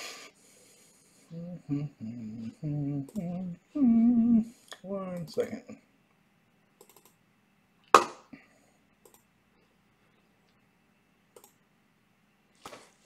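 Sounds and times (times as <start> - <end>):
faint clicks: 3.0 - 3.3, 6.8 - 7.2, 9.0 - 9.3, 11.3 - 11.6.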